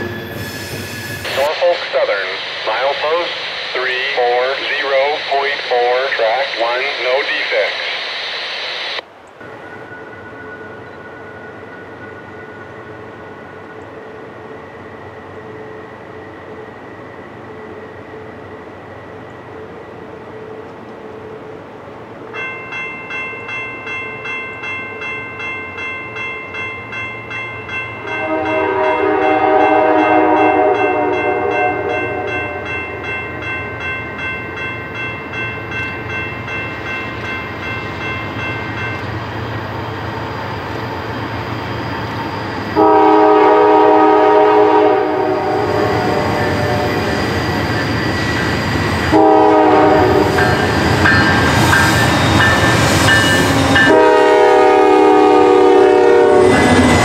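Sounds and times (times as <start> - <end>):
locomotive bell ringing: 0.0 - 1.5, 9.4 - 18.6, 22.3 - 40.2, 41.5 - 57.0
train rumble: 0.0 - 57.0
train air horn blasts: 28.1 - 32.7, 42.8 - 47.1, 49.1 - 50.7, 53.2 - 56.9.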